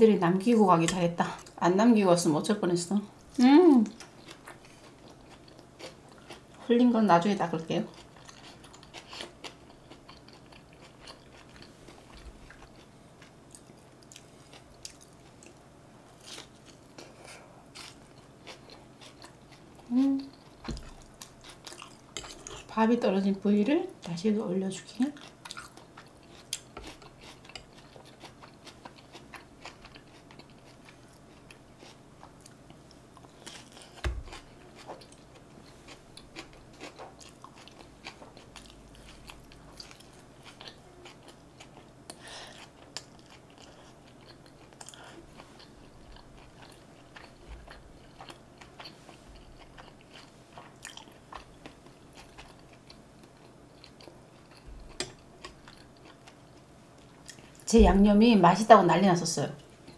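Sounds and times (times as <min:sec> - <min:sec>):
chewing and biting: 0:25.2 - 0:56.6.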